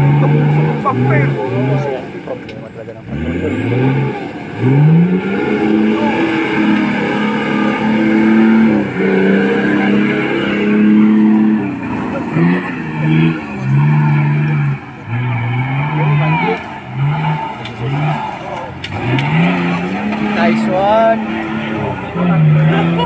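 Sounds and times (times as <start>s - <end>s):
truck engine revving hard: 0.0s - 23.0s.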